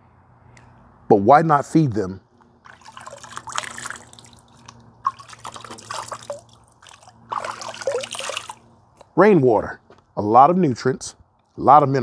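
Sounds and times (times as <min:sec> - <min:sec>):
water splashing and trickling: 0:02.6 - 0:08.8.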